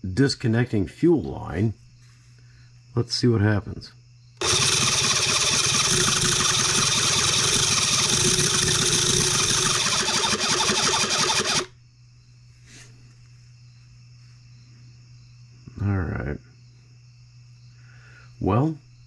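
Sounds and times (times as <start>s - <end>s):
electric starter cranking engine: 4.4s - 11.8s.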